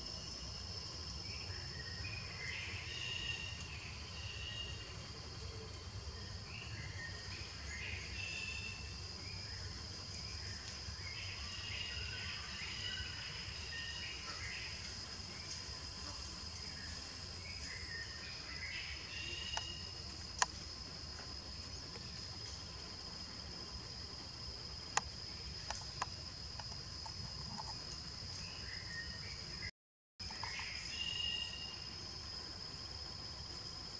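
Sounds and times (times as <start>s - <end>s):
high insect drone: 0.0s - 33.9s
higher insect drone: 0.0s - 33.9s.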